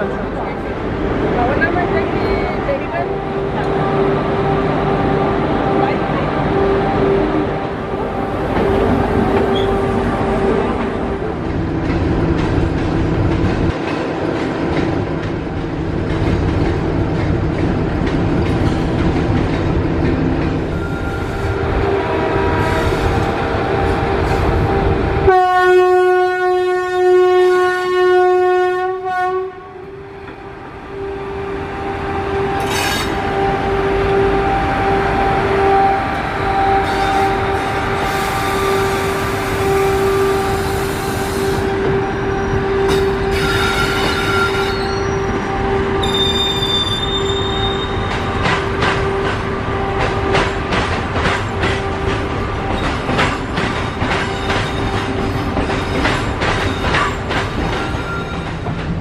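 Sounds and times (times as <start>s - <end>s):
locomotive horn blast: 20.8s - 29.9s, 31.0s - 50.7s
train wheels clacking over rails: 47.9s - 59.0s.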